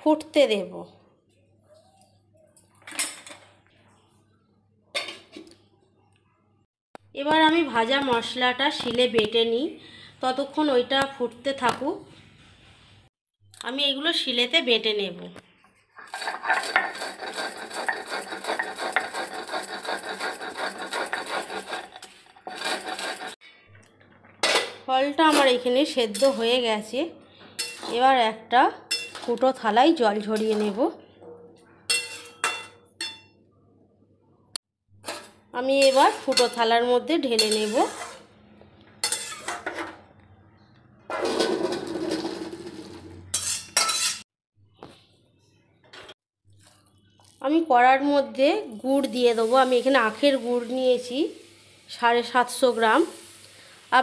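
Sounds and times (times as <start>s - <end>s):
pan clanking: 16.0s - 23.4s
stone roller grinding spices: 16.0s - 23.4s.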